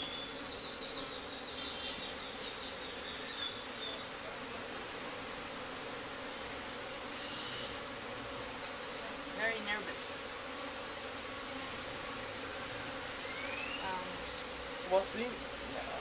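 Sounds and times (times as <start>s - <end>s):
honey bees buzzing: 0.0s - 16.0s.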